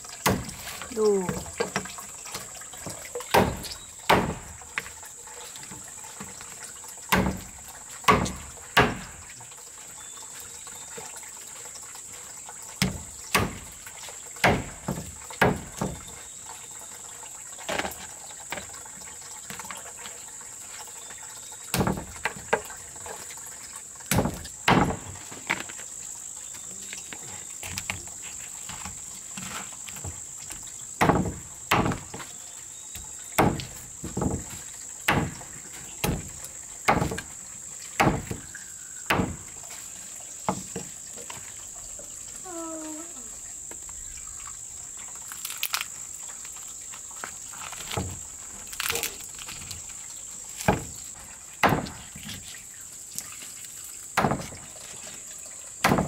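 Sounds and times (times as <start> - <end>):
cleaver chopping on wooden block: 3.3 - 4.5, 8.1 - 9.1, 14.4 - 15.9, 36.9 - 37.3, 38.0 - 38.5, 39.1 - 39.4, 51.6 - 52.0
high-pitched insect drone: 42.2 - 44.2.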